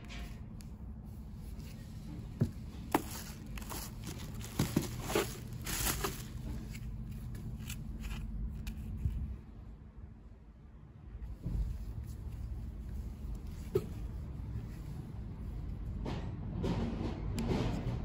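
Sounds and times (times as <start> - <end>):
low background rumble: 0.0 - 18.0
cardboard box rustling: 1.4 - 9.1
plastic wrap crinkling: 2.8 - 8.2.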